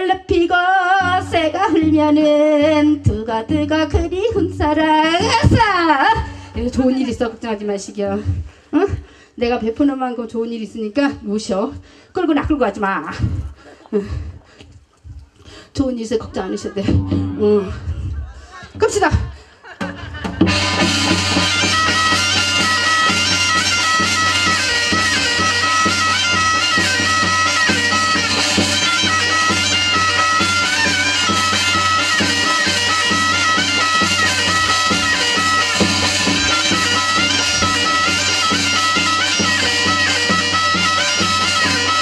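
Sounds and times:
drum strokes: 0:19.8 - 0:42.0
nasal double-reed pipe melody: 0:20.5 - 0:42.0.

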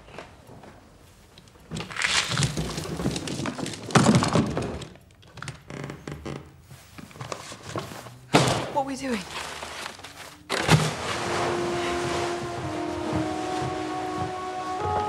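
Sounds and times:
rustling: 0:00.0 - 0:15.0
thuds and knocks: 0:10.5 - 0:14.3.

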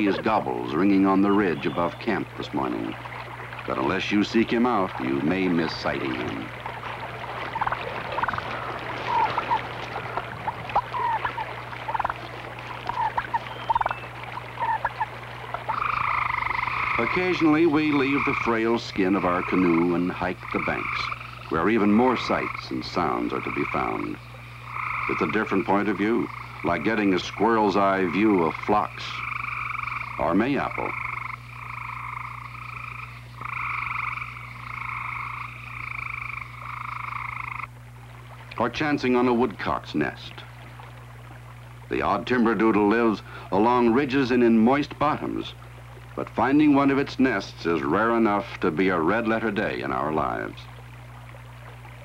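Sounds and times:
turkey clucking: 0:00.0 - 0:02.9, 0:07.3 - 0:18.5
frogs trilling: 0:00.0 - 0:52.0
turkey rattling bursts: 0:07.6 - 0:18.2.

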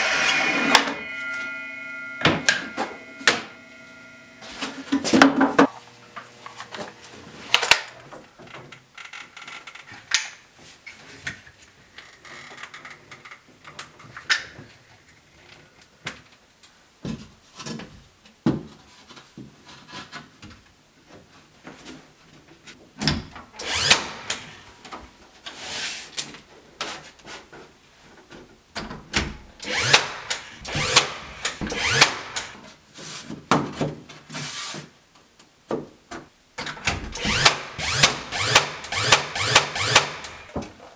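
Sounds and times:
cordless drill driving into wood: 0:23.6 - 0:24.6, 0:29.6 - 0:32.6, 0:37.1 - 0:40.6.

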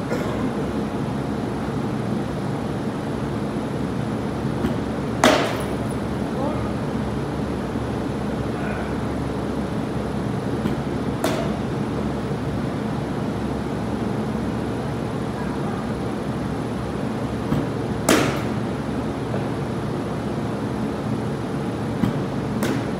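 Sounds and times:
steady mechanical drone: 0:00.0 - 0:22.9
baseball bat cracking balls: 0:04.6 - 0:05.9, 0:10.6 - 0:11.8, 0:17.4 - 0:18.7, 0:22.0 - 0:22.9.

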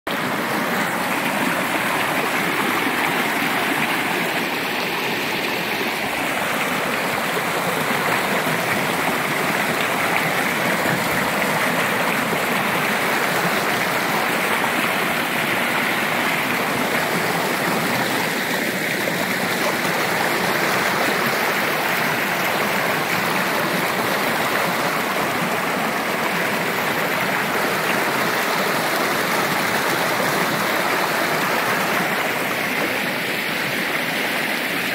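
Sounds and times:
stream rushing over rocks: 0:00.1 - 0:34.9.

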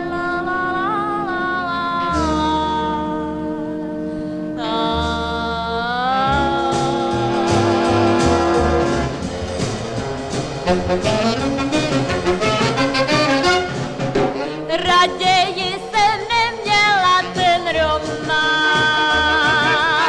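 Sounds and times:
brass dance-band music: 0:06.3 - 0:20.0.

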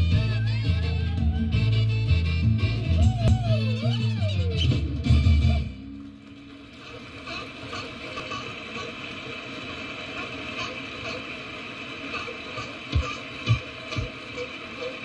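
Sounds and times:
music: 0:00.0 - 0:09.6
faint hum: 0:00.0 - 0:15.0.

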